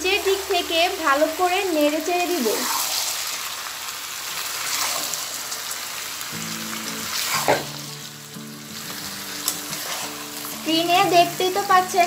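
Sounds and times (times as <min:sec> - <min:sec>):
meat sizzling in a pan: 0:00.0 - 0:12.0
spatula scraping a pan: 0:07.1 - 0:07.8, 0:09.4 - 0:10.5.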